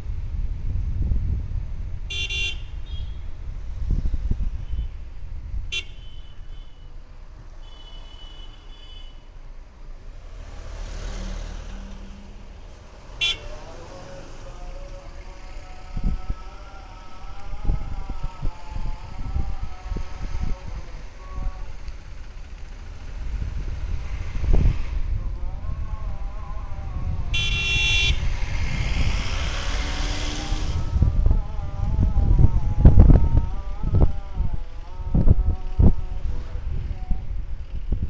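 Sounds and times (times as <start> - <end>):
car engine and road noise: 0.0 - 38.0
car horn toots: 2.1 - 3.2, 5.7 - 6.9, 13.0 - 14.0, 27.3 - 28.3.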